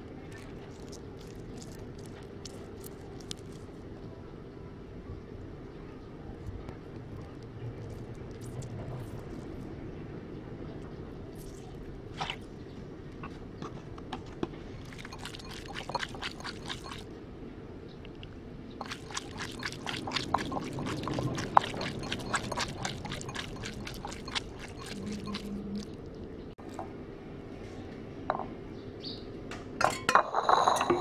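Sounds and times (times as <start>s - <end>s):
hands squelching raw meat: 0.4s - 3.7s, 14.8s - 17.0s, 18.8s - 26.3s.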